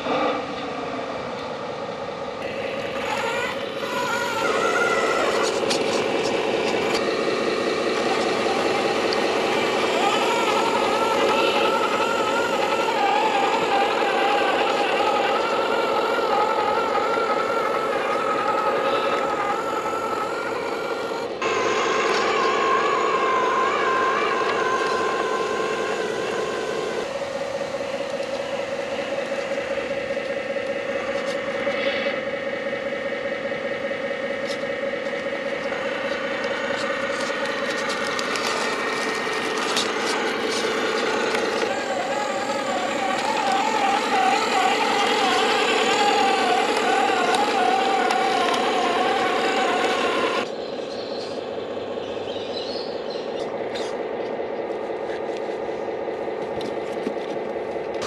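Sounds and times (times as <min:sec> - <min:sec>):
radio-controlled trucks whining: 0:00.0 - 0:58.0.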